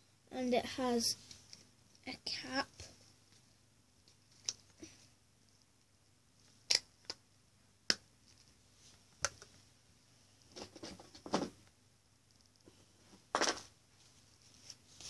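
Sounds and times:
rustling and scraping: 10.4s - 11.6s, 12.6s - 15.0s.

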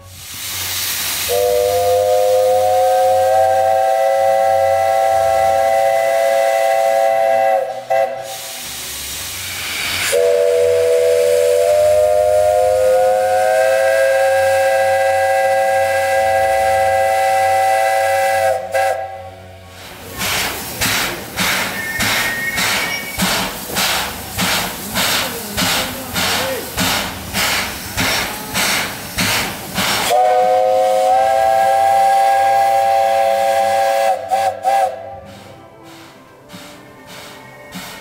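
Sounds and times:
steam hiss: 0.0s - 38.0s
steam whistle blasts: 1.2s - 8.7s, 9.7s - 19.4s, 21.6s - 23.4s, 30.0s - 36.1s.

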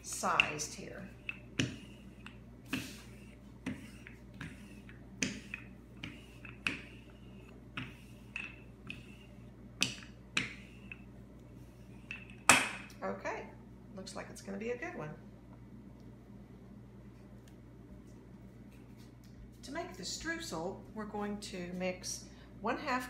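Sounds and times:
rolling pin clacking on countertop: 0.0s - 2.9s, 3.6s - 7.0s, 9.8s - 11.0s.

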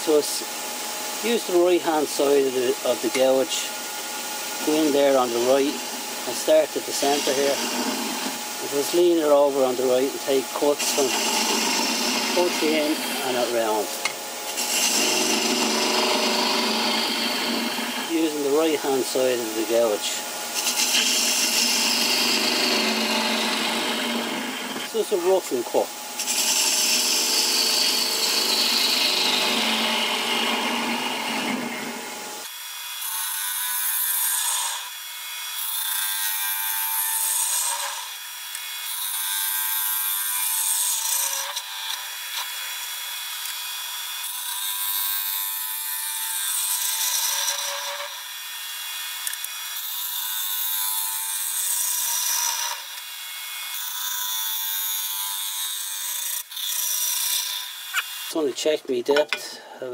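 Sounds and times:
lathe gouge scraping wood: 0.0s - 32.5s.

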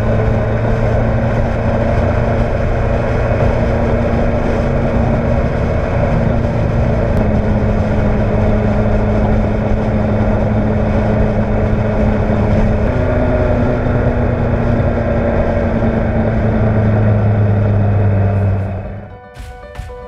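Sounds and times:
motorcycle engine running: 0.0s - 19.9s
wind and road noise: 0.0s - 19.9s
music with a beat: 19.0s - 20.0s.

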